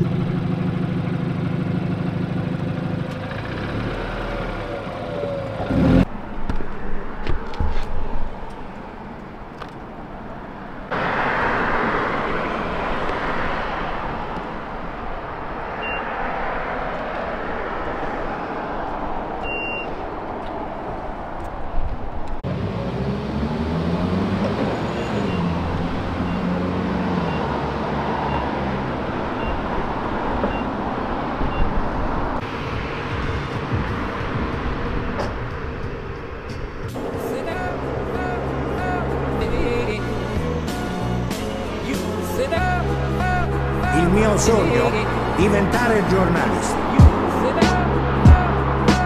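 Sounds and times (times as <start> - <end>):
tyre and road noise: 0.0 - 49.0
car engine revving: 3.2 - 6.2, 22.4 - 49.0.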